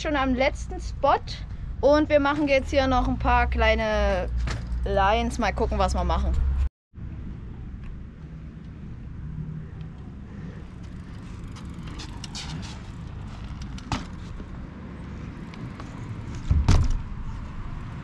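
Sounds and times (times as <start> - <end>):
steady low rumble: 0.0 - 14.8
bike riding on asphalt: 7.0 - 18.0
heavy thump: 16.5 - 17.1.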